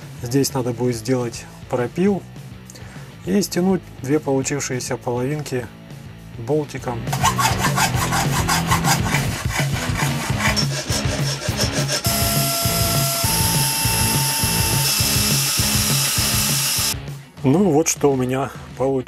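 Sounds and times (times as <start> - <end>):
metal file rasping: 7.1 - 16.8
hacksaw sawing metal: 7.1 - 17.0
rotary tool drilling whine: 11.8 - 17.0.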